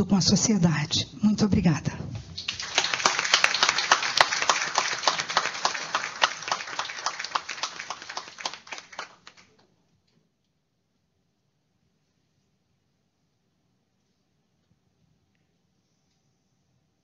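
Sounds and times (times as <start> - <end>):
audience applauding: 2.4 - 9.6.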